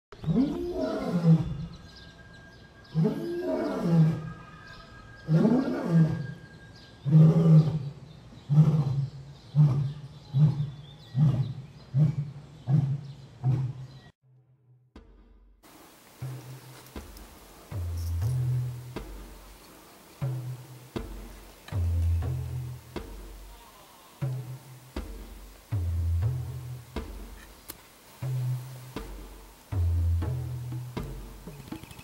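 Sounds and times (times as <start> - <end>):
lion roaring: 0.2 - 1.9, 2.9 - 14.0.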